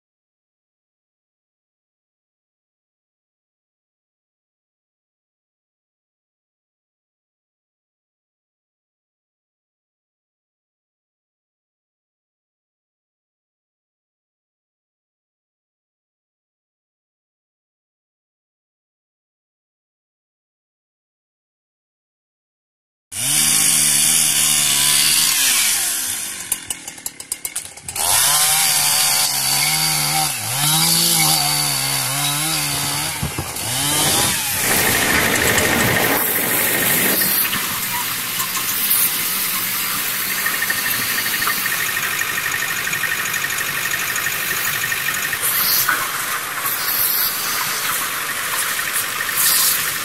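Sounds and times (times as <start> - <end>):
chainsaw revving cutting logs: 23.2 - 50.0.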